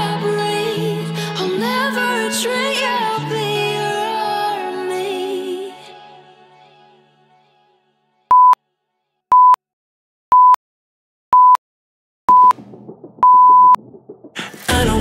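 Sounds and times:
timer beeps: 8.3 - 8.6, 9.3 - 9.6, 10.3 - 10.6, 11.4 - 11.6, 12.3 - 12.6, 13.2 - 13.8.

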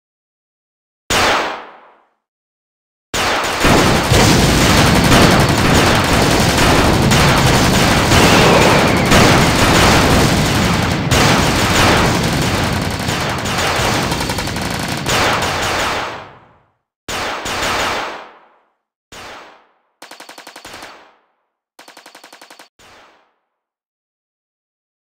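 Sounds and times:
rifle and machine-gun fire: 3.2 - 18.5, 19.2 - 21.2, 21.8 - 22.7
explosions: 3.6 - 16.6.

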